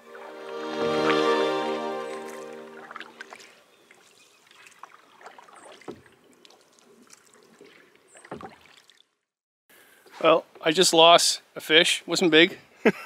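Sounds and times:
water dripping and lapping: 0.0s - 9.4s.

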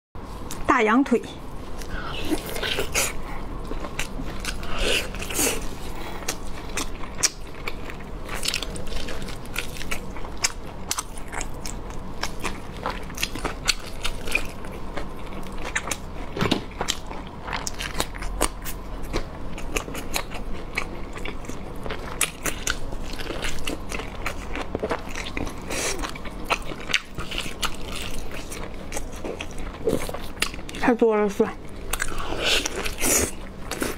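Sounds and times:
chewing with wet mouth clicks: 6.2s - 30.8s, 31.9s - 33.9s.

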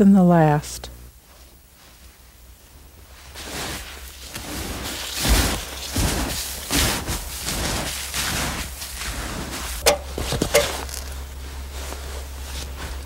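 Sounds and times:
snowshoes crunching snow: 3.0s - 13.0s
sharp knocks: 9.8s - 10.8s.

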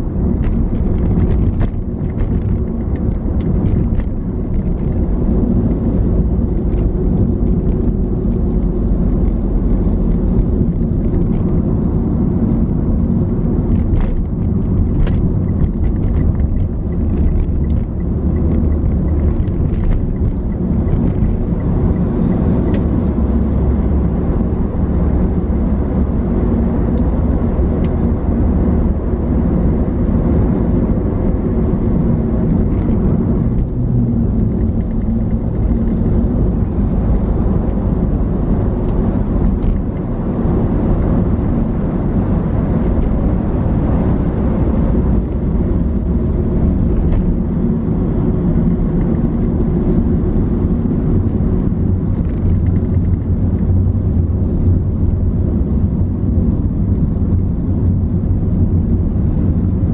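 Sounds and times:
car engine rumble: 0.0s - 59.9s
road noise: 0.0s - 59.9s.

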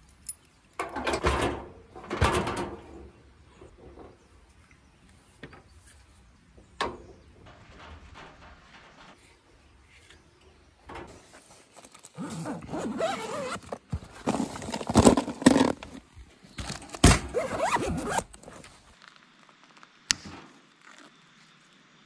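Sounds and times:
packages and bottle shifting: 11.5s - 19.6s
cooler zipper being pulled: 12.1s - 16.0s, 17.3s - 18.9s.

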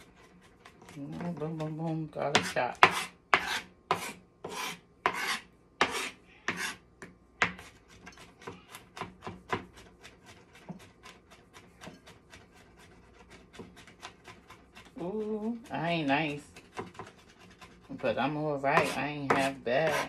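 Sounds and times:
knife chopping on cutting board: 2.3s - 7.7s, 8.4s - 14.9s, 16.6s - 17.8s, 18.7s - 20.0s.

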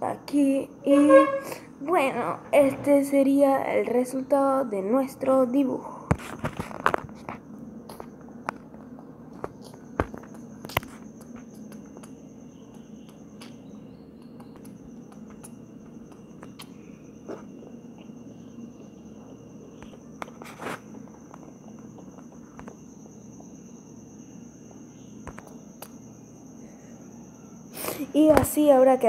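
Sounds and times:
faint background hum: 0.0s - 29.0s
high-pitched whine: 0.8s - 2.9s.

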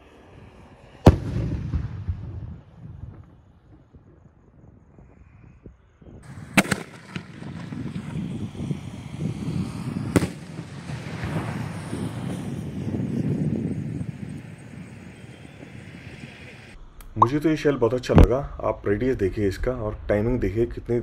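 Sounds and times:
firework launch bang: 1.0s - 3.4s, 6.3s - 8.3s, 10.1s - 11.6s
firework shell bursting: 6.3s - 8.0s
rumbling background: 17.0s - 21.0s.

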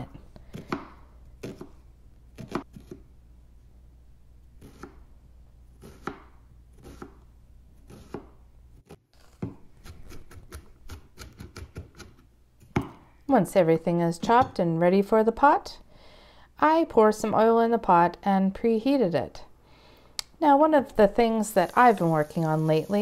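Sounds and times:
knife chopping on cutting board: 7.9s - 8.3s.

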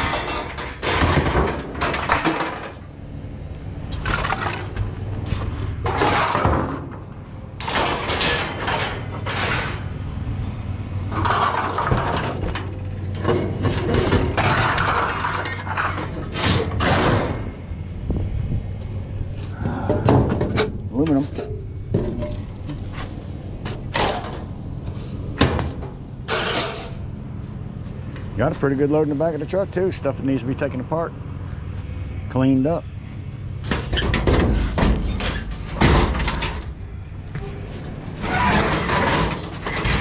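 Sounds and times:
scrap metal clanking: 0.0s - 2.9s, 3.9s - 7.0s, 7.6s - 17.7s, 19.8s - 27.1s, 33.6s - 36.8s, 37.4s - 40.0s
steady low hum: 16.6s - 38.2s.

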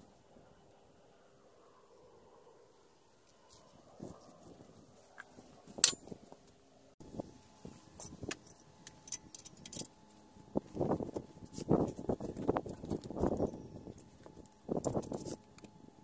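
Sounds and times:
metal parts clinking and knocking: 8.0s - 9.9s.

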